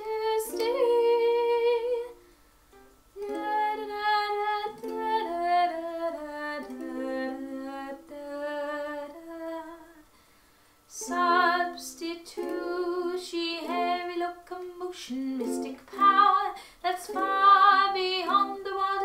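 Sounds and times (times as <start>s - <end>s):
ukulele: 0.0s - 9.9s, 10.9s - 19.0s
woman singing held notes: 10.9s - 19.0s.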